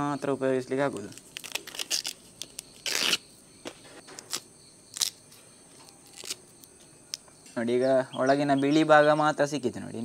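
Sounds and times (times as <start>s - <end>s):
bamboo shoot sheaths ripping: 0.9s - 3.2s, 4.2s - 5.2s, 6.0s - 6.4s.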